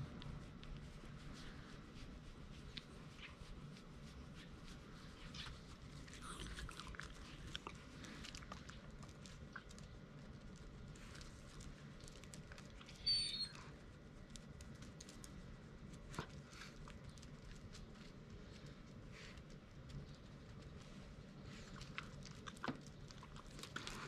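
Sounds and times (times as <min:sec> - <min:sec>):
faint scratching of fur: 0:00.0 - 0:24.0
dog chirp: 0:13.0 - 0:13.6.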